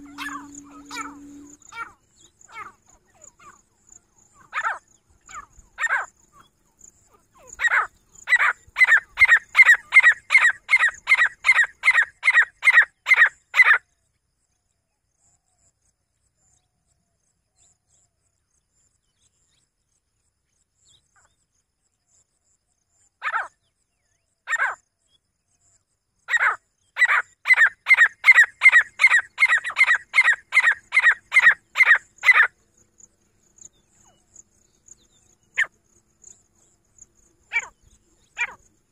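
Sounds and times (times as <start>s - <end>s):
francolin calling: 0.0s - 3.6s, 7.5s - 13.8s, 26.3s - 38.9s.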